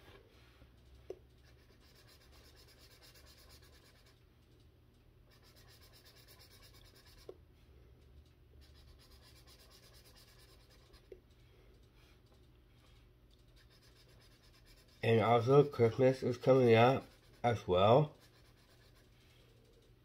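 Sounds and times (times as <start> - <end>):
marker scratching on paper: 1.4 - 4.2, 5.3 - 7.4, 8.6 - 11.1, 13.6 - 19.2.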